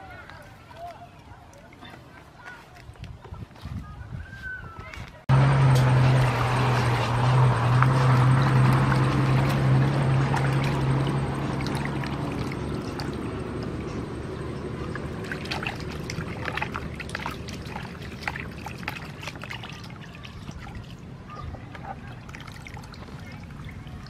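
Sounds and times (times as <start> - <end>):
low steady hum: 5.3 - 24.0
water dripping: 5.4 - 21.0
water sloshing in a basin: 5.6 - 24.0.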